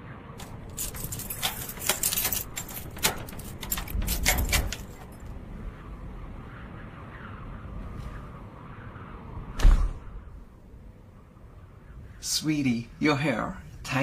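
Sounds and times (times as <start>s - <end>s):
keys jangling in a door lock: 0.4s - 5.3s.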